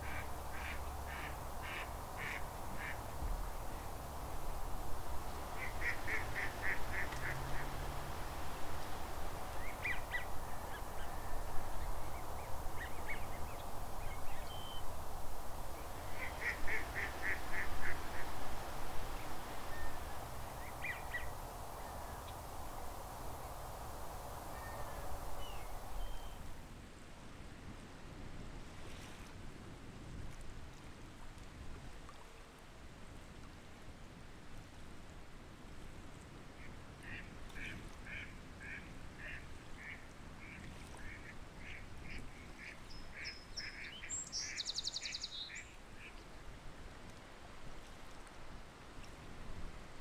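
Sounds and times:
waterfowl calling: 0.0 - 3.0, 5.4 - 8.2, 16.1 - 18.4
water background: 0.0 - 27.0, 28.6 - 50.0.

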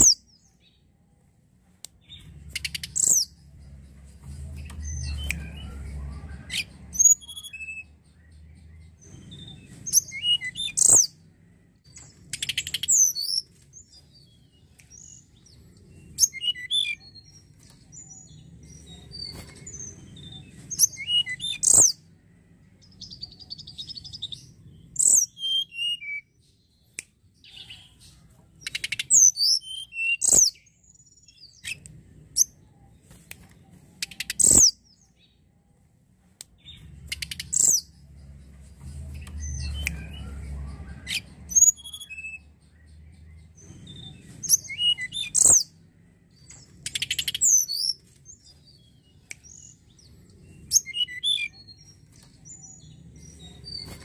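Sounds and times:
bird singing whistled notes: 2.0 - 3.4, 4.7 - 11.2, 16.0 - 22.0, 22.9 - 26.3, 28.6 - 32.6, 34.0 - 35.1, 36.6 - 38.0, 39.2 - 45.7, 46.4 - 54.0.

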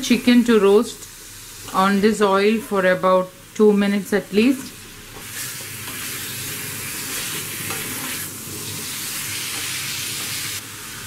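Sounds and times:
chicken sizzling in a wok: 0.0 - 3.7, 4.3 - 11.0
spatula stirring in a wok: 5.1 - 11.0.

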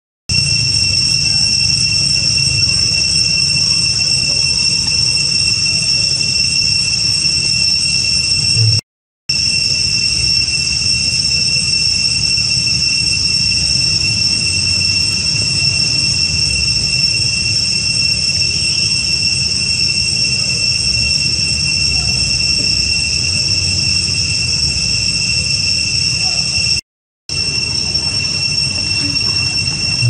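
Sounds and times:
high-pitched insect drone: 0.3 - 30.0
low rumble: 8.6 - 8.8.

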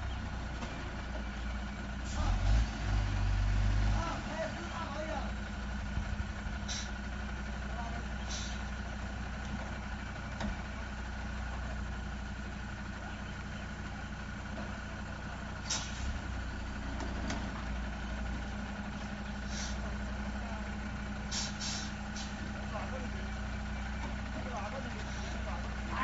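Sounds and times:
truck engine idling: 0.0 - 26.0
brief hisses: 21.3 - 22.4.

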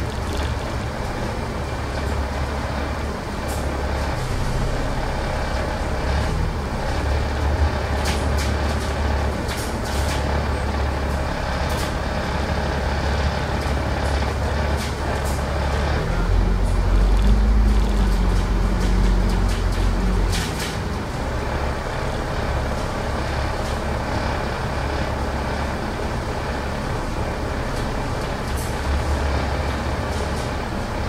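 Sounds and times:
bus engine droning: 0.0 - 31.0.

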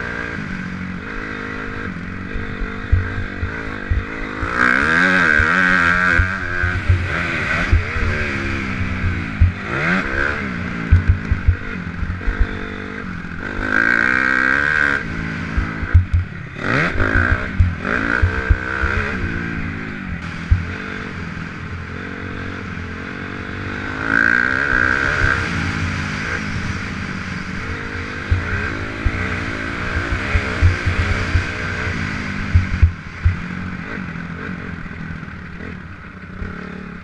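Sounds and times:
dirt bike engine revving: 0.0 - 37.0
low thumps over bumps: 2.2 - 10.2, 10.8 - 12.7, 15.5 - 19.4, 20.0 - 20.8, 28.1 - 33.5.

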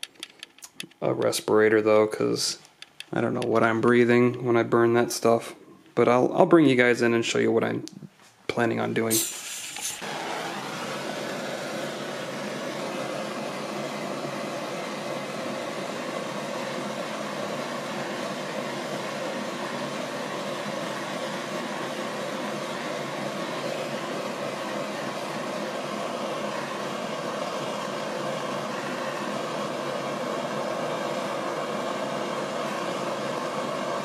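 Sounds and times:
propane torch hissing: 9.0 - 34.0.

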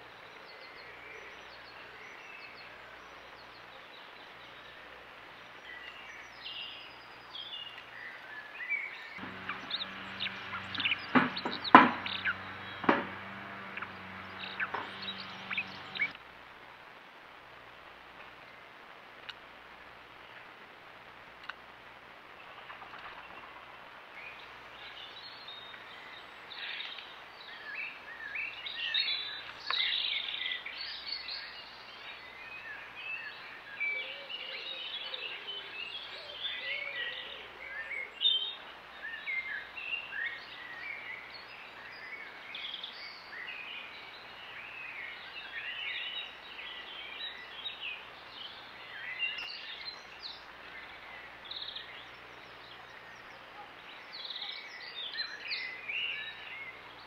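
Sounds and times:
small birds singing and chirping: 0.0 - 16.2, 24.1 - 57.0
faint steady low hum: 9.2 - 27.3.

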